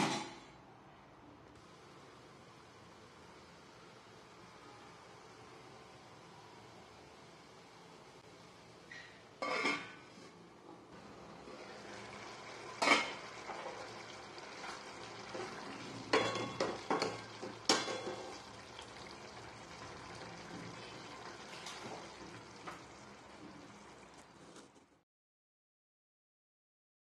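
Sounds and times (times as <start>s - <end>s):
curry sizzling and simmering: 11.0s - 25.0s.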